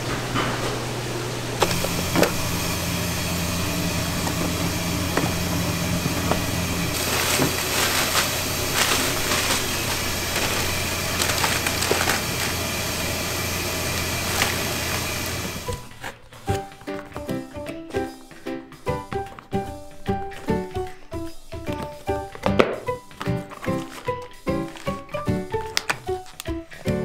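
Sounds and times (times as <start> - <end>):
low hum: 1.1 - 15.7
plastic bag crinkling: 1.6 - 17.3, 19.3 - 27.0.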